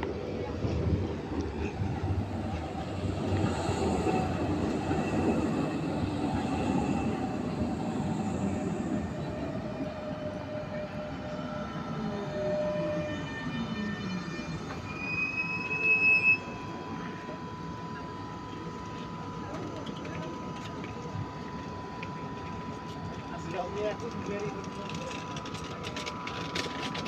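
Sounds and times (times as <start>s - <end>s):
tram motor whine: 0.0s - 27.0s
tram rail rumble: 0.0s - 27.0s
high steady squeal: 1.6s - 18.9s.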